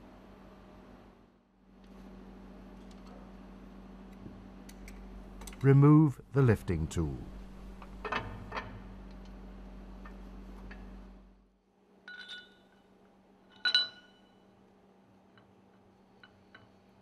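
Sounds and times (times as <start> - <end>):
steady low hum: 0.0 - 17.0
ringing metallic clinks: 12.1 - 12.8, 13.5 - 14.4.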